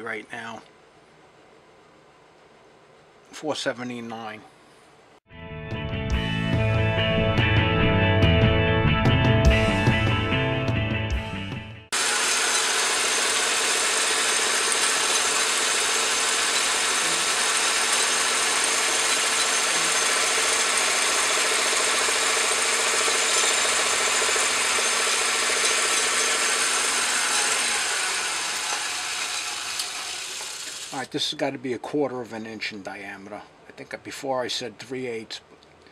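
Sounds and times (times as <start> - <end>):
metal lathe cutting aluminum: 11.9 - 31.0.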